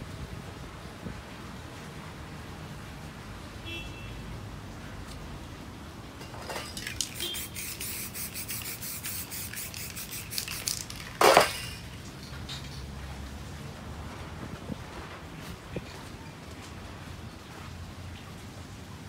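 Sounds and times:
spray paint can puffs: 6.8s - 11.9s.

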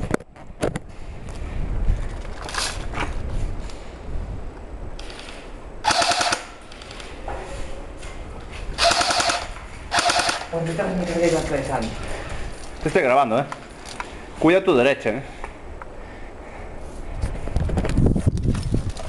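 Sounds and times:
airsoft rifle bursts: 5.0s - 6.8s, 8.8s - 10.6s.

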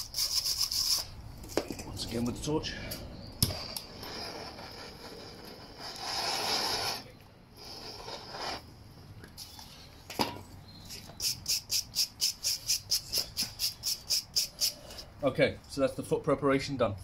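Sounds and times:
gas torch hissing: 3.4s - 8.7s.

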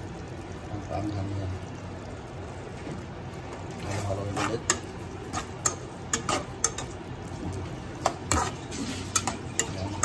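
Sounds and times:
metal spatula scraping a pot: 3.8s - 7.0s, 8.0s - 10.0s.

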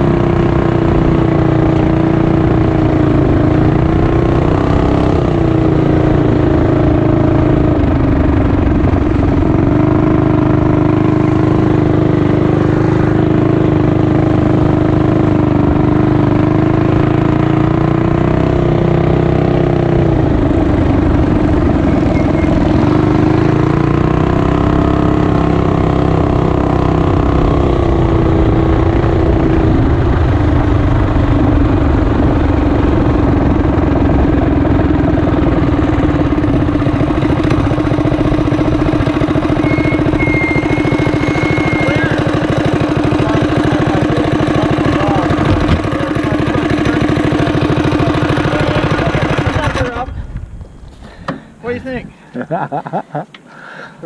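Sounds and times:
small motorbike engine revving: 8.9s - 30.3s, 33.1s - 50.2s.

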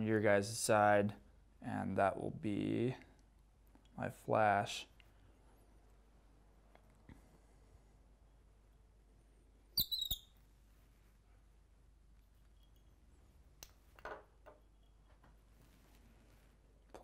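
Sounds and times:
short high squeak: 9.8s - 10.3s
soft rustle: 10.4s - 11.5s, 15.3s - 17.0s.

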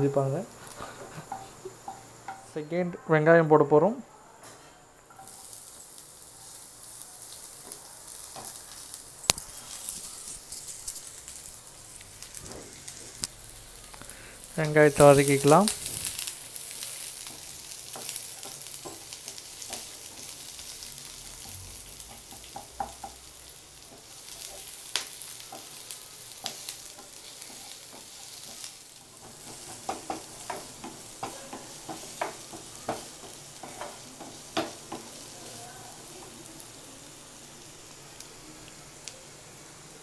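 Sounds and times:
onions sizzling in oil: 0.0s - 2.8s, 4.9s - 40.0s
spatula tapping and scraping pan: 1.3s - 2.5s, 16.8s - 20.4s, 21.4s - 35.3s.

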